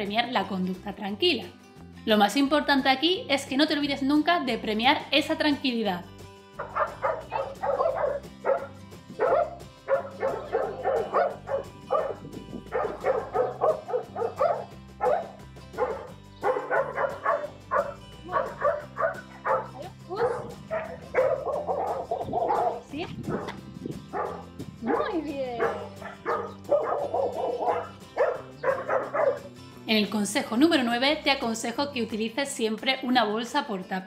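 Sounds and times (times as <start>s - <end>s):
background music: 0.0s - 34.0s
dog yipping and whining: 6.6s - 29.5s.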